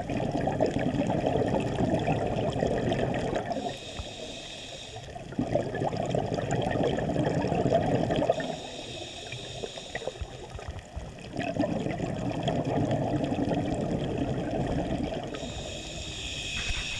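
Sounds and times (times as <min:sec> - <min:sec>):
diver exhaling bubbles: 0:00.0 - 0:04.2, 0:05.1 - 0:10.2, 0:11.2 - 0:16.9
regulator inhale hiss: 0:03.5 - 0:05.2, 0:08.3 - 0:10.7, 0:15.3 - 0:16.9.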